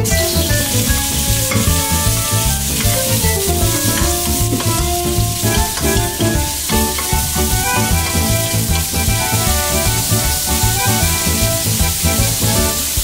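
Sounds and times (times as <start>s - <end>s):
meat sizzling in hot oil: 0.0s - 13.0s
spoon scraping a wok: 0.3s - 9.4s.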